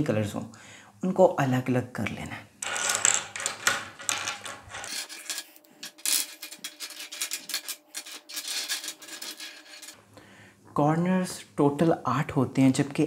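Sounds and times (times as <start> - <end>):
plastic pieces clicking on table: 2.6 - 9.9.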